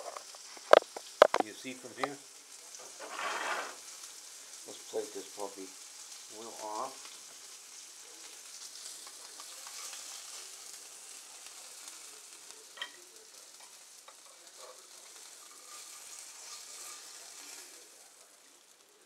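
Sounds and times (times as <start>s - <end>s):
meat sizzling in a frying pan: 0.0s - 19.0s.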